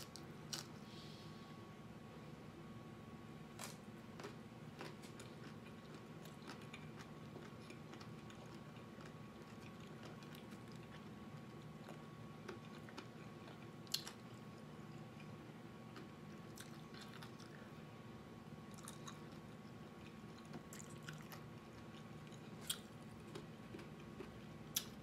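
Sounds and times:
wet chewing: 3.6s - 14.6s, 18.7s - 25.0s.

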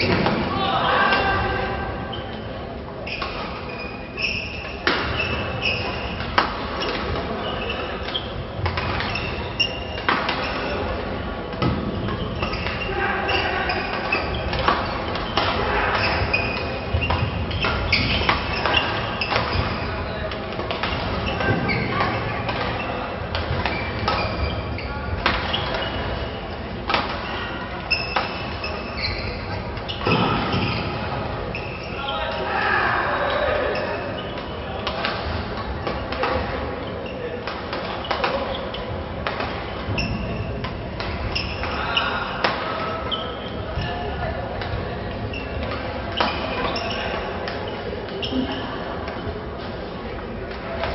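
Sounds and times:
shoes squeaking on court floor: 0.0s - 50.9s
racket hitting shuttlecock: 26.8s - 27.3s.

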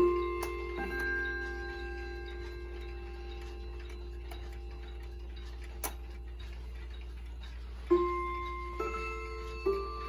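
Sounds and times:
clock chime rods ringing: 0.0s - 10.0s
wall clock ticking: 0.0s - 10.0s.

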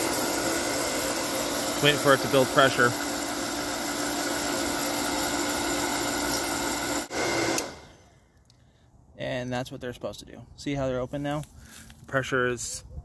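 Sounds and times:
pump motor running: 0.0s - 8.0s.

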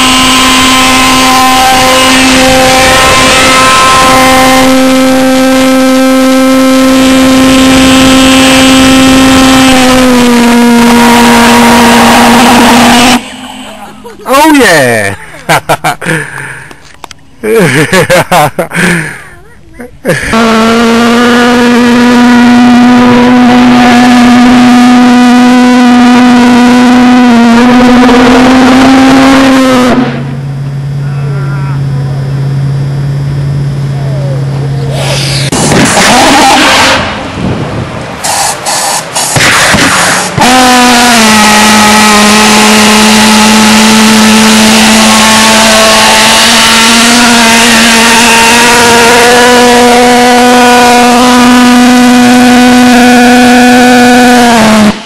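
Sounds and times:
model pulsejet engine drone: 0.0s - 10.4s, 20.1s - 55.0s
loud rushing noise: 12.2s - 15.2s, 34.7s - 41.2s.

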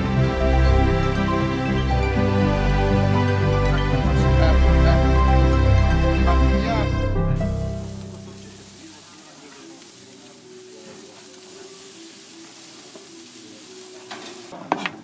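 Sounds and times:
steaks sizzling on a grill: 7.3s - 14.8s.

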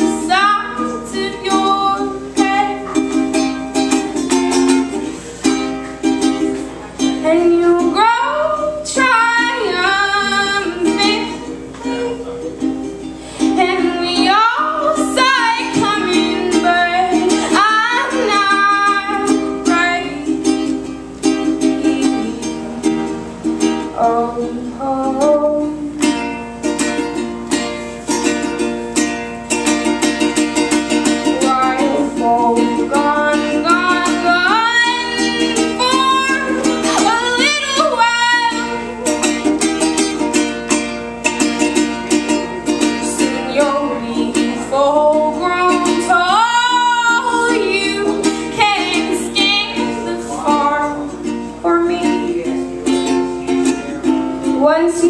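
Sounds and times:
woman singing: 0.0s - 5.0s, 7.2s - 12.2s, 13.4s - 22.7s, 23.8s - 26.4s, 30.8s - 39.6s, 41.8s - 55.0s
strummed ukulele: 0.0s - 55.0s.

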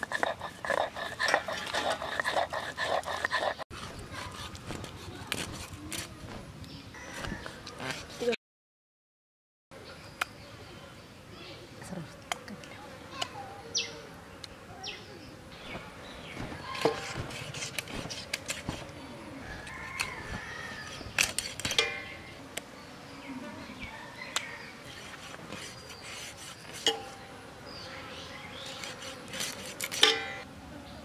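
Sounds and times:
birds chirping: 0.0s - 3.6s, 12.6s - 18.3s, 18.9s - 29.2s
blade cutting chicken: 16.6s - 18.9s, 28.6s - 30.2s.

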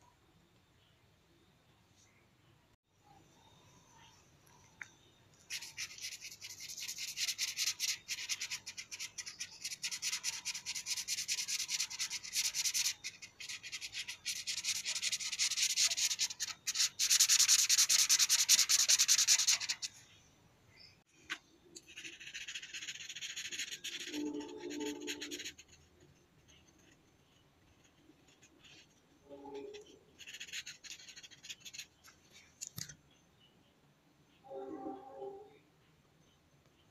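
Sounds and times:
marker scribbling on paper: 5.5s - 19.9s, 21.9s - 25.8s, 27.7s - 31.9s.

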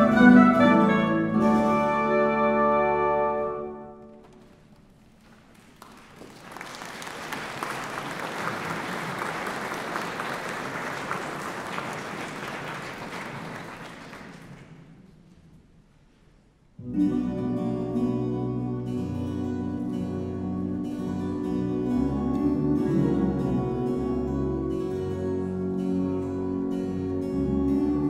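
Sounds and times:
zithers recorders and strings chord: 0.0s - 4.1s, 16.8s - 28.0s
audience applause: 4.2s - 15.0s.

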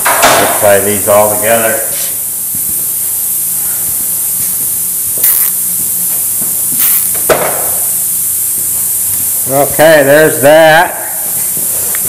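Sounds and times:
sharp knock: 0.0s - 0.6s, 7.2s - 7.8s
background hum and hiss: 0.0s - 12.0s.

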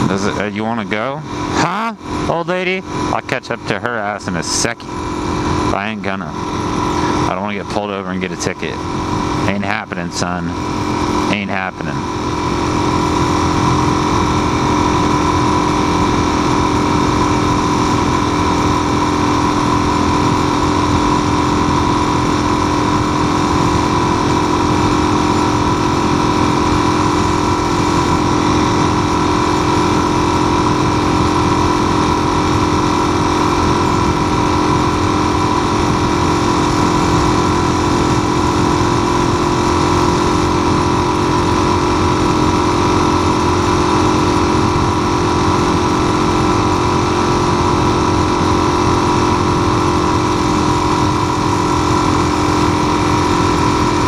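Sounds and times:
motorcycle engine cruising: 0.0s - 54.0s
wind and road noise: 0.0s - 54.0s.

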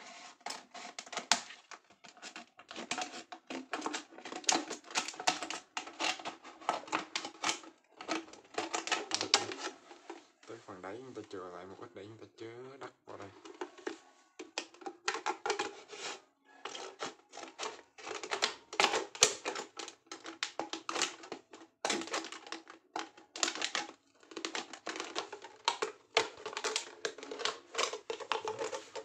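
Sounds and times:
scissors cutting plastic bottle: 0.4s - 9.8s, 13.5s - 29.0s.

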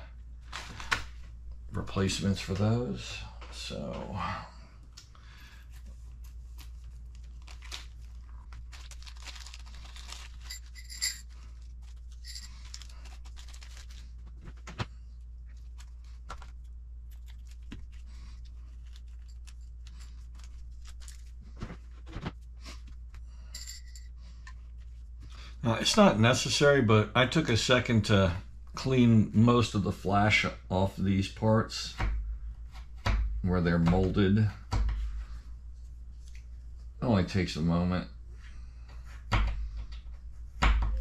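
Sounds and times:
steady low hum: 0.0s - 41.0s
plastic bag crinkling: 6.2s - 14.8s, 15.5s - 21.6s.

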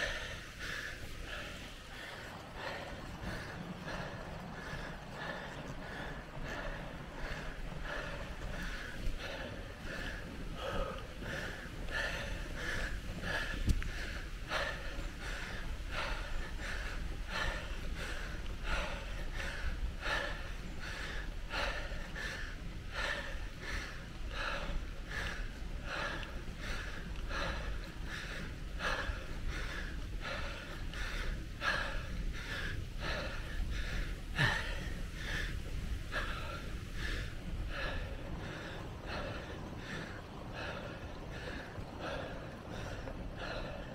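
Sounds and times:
hard rhythmic breathing: 0.0s - 43.9s
low rumble: 0.0s - 43.9s.

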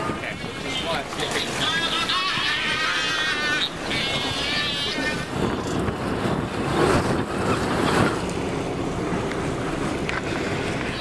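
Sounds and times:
faint low boat hum: 0.0s - 11.0s
sea wash along hull: 0.0s - 11.0s
wind buffeting microphone: 0.0s - 11.0s.

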